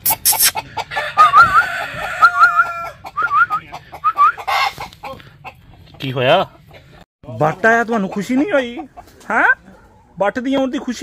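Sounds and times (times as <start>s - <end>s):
chickens clucking: 0.0s - 11.0s
chickens high wavering calls: 0.1s - 6.0s.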